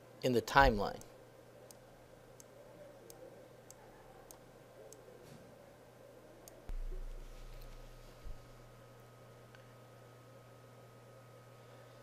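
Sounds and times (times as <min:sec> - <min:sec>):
computer mouse clicks: 0:03.1 - 0:05.0.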